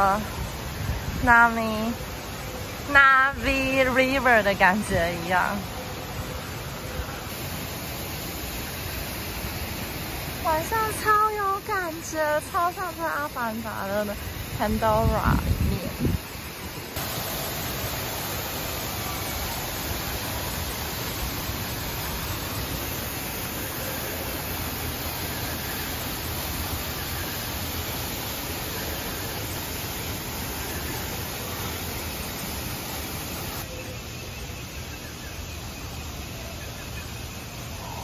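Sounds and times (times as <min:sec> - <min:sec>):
waterfall pouring onto rocks: 0:17.0 - 0:33.6.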